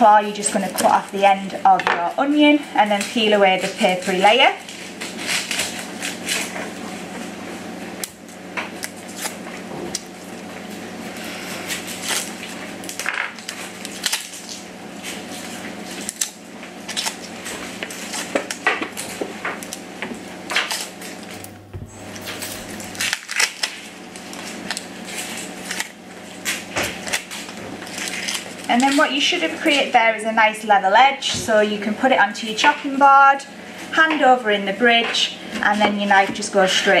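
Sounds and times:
steady low hum: 0.0 - 37.0
onion skin crackling: 2.3 - 7.0, 8.0 - 29.9.

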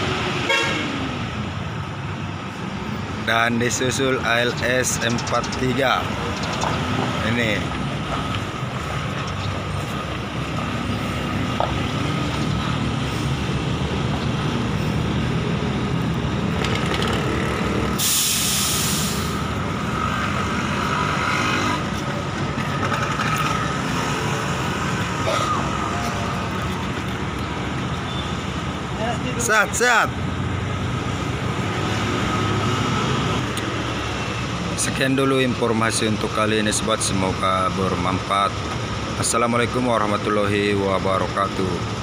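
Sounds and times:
diesel coach engine running: 0.0 - 42.0
air brake hiss: 18.0 - 19.4.

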